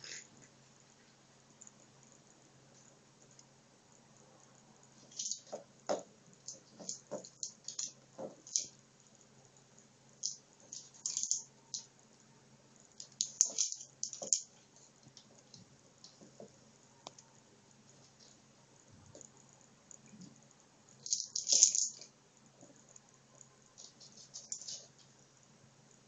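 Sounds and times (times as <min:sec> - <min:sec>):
plastic treat ball rattling on wooden floor: 0:05.0 - 0:08.7, 0:13.0 - 0:14.5, 0:21.0 - 0:22.1.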